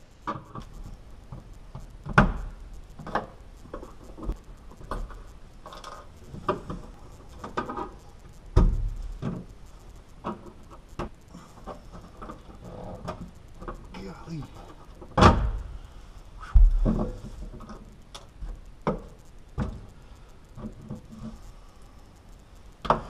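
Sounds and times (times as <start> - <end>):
loud thumps: 16.4 - 17.5.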